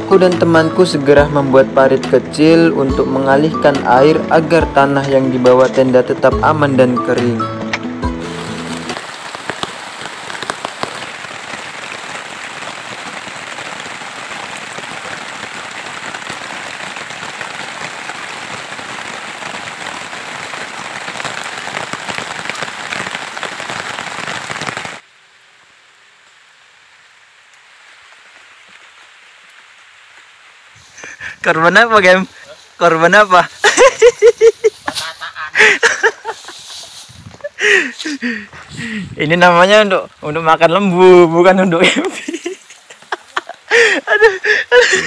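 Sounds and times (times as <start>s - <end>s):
faint rain on lake: 8.1s - 45.0s
heavy rain on rocks: 8.1s - 45.0s.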